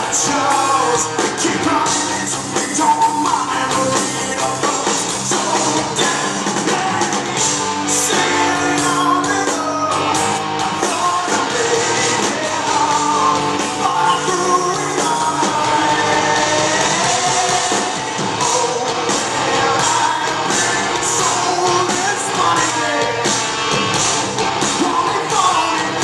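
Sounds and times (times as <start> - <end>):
man singing into microphone: 0.0 - 10.2, 10.8 - 23.4, 24.7 - 26.0
live rock band playing: 0.0 - 26.0.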